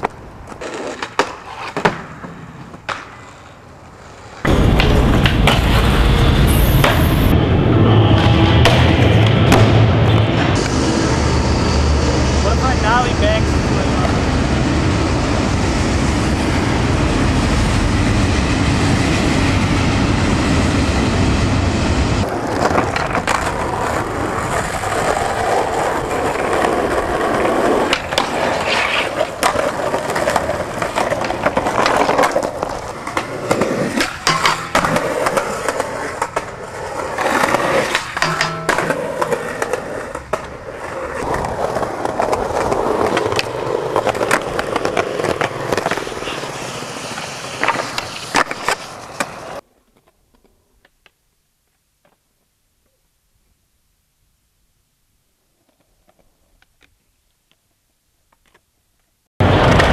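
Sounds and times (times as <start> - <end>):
skateboard tails clacking: 0.0 - 6.0, 22.2 - 53.0
skateboard wheels rolling: 0.0 - 53.8, 55.2 - 59.9.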